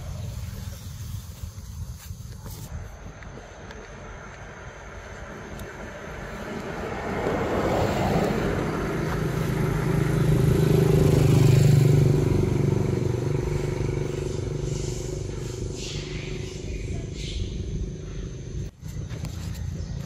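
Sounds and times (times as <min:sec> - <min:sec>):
vehicle engine passing by: 0:04.0 - 0:20.0.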